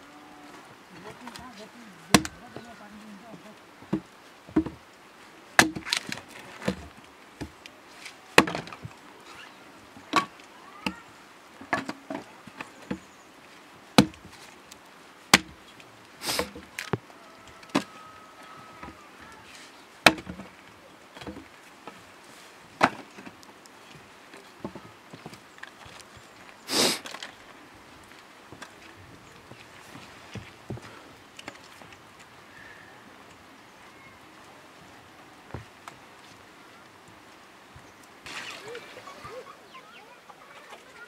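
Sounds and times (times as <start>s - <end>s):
wood chopping and splintering: 2.1s - 2.7s, 3.9s - 4.8s, 5.6s - 7.6s, 8.4s - 8.9s, 14.0s - 14.3s, 15.3s - 15.6s, 16.3s - 17.0s, 20.0s - 20.5s, 22.8s - 23.4s.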